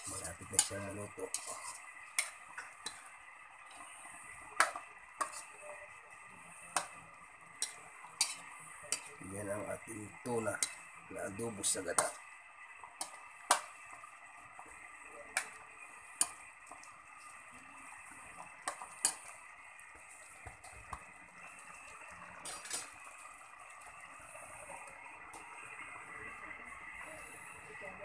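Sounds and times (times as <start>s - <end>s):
ladle stirring stew: 0.0s - 11.0s, 12.9s - 24.0s.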